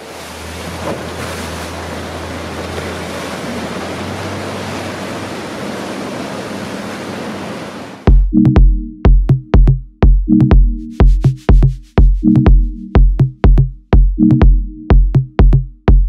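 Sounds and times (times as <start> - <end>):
outboard motor drone: 0.0 - 8.1
water rushing past hull: 0.0 - 8.2.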